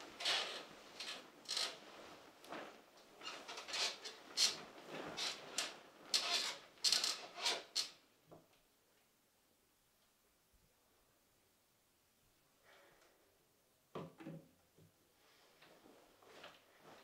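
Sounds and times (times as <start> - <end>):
bedding rustling: 0.0 - 6.8.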